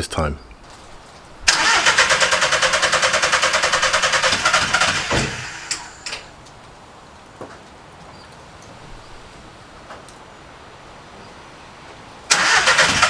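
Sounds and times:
diesel engine cranking: 0:01.5 - 0:06.3, 0:12.3 - 0:13.0
engine stopping thump: 0:01.6 - 0:06.2.

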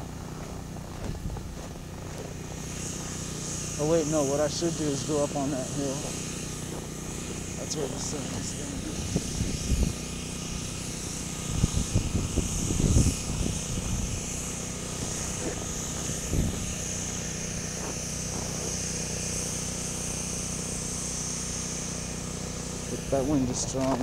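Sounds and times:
motor hum with high whine: 0:00.0 - 0:24.0
wind gusts on microphone: 0:08.8 - 0:10.1, 0:11.4 - 0:16.8.

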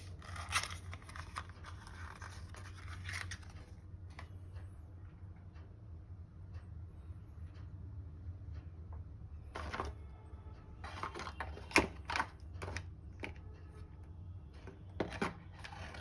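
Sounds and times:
steady low hum: 0:00.0 - 0:16.0
plastic parts clicking: 0:10.8 - 0:13.4.

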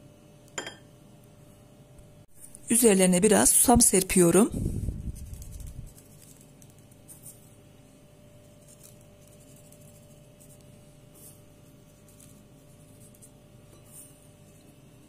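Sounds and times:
faint steady hum: 0:00.0 - 0:15.0
seeds rustling and crackling: 0:05.1 - 0:07.4.

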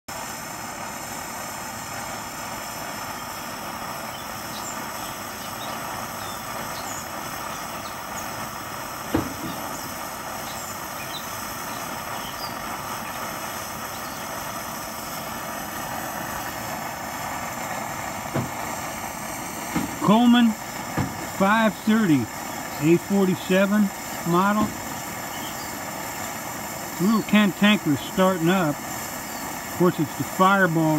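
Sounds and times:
stove burner hissing: 0:00.1 - 0:30.9
sharp knock: 0:09.1 - 0:09.6.

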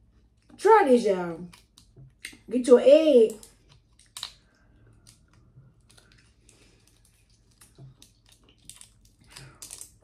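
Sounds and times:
food being handled and eaten: 0:03.3 - 0:10.0.

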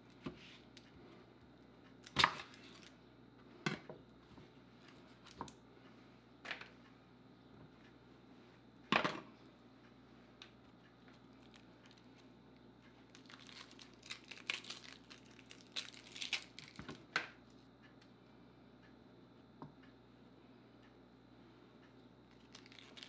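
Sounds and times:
onion skin crackling and tearing: 0:13.1 - 0:17.0, 0:22.3 - 0:23.0.

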